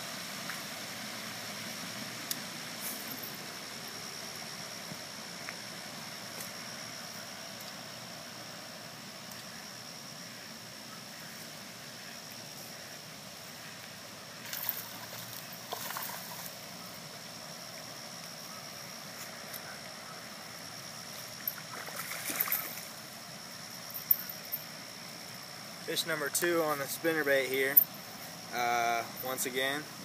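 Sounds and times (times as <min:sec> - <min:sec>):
steady outdoor hiss: 0:00.0 - 0:30.0
faint high steady tone: 0:02.8 - 0:30.0
fish splashing in water: 0:21.6 - 0:22.9.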